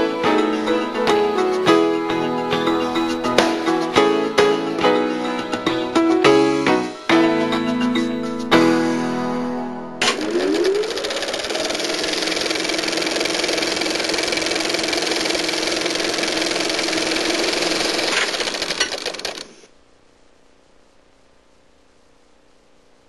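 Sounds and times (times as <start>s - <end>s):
film projector clattering: 10.0s - 19.7s.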